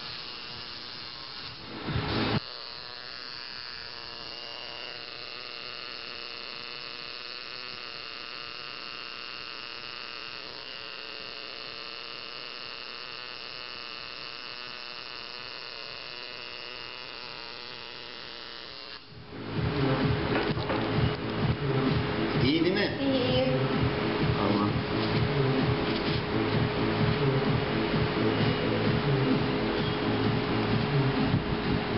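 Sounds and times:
tattoo machine buzzing: 0.0 - 31.9
loud noisy sound: 19.2 - 31.9.

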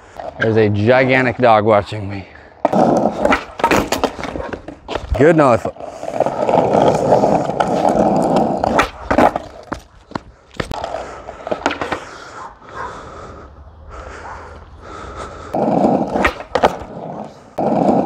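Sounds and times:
skateboard wheels rolling on asphalt: 2.5 - 18.0
skateboard clacking on pavement: 6.1 - 12.0.

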